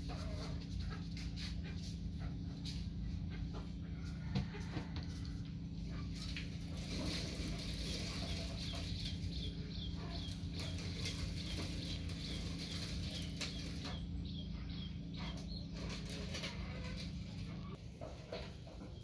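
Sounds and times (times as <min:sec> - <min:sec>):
steady low hum: 0:00.0 - 0:19.0
bird chirping: 0:07.8 - 0:17.0.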